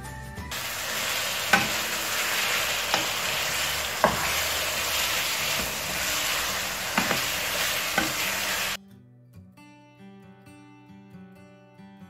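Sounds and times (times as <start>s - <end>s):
fish sizzling in a frying pan: 0.5s - 8.8s
wooden spatula knocking on pan: 1.4s - 8.7s.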